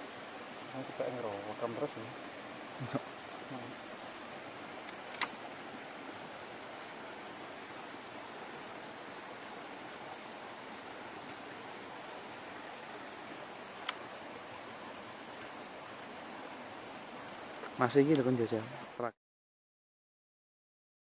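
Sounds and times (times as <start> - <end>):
rushing outdoor background noise: 0.0 - 19.1
sharp click: 4.8 - 5.4.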